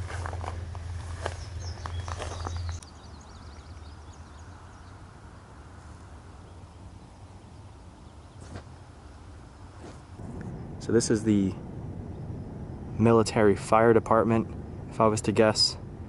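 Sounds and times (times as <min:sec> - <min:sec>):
footsteps through tall grass: 0:00.0 - 0:02.8
birds chirping: 0:00.0 - 0:15.8
low hum: 0:00.0 - 0:16.0.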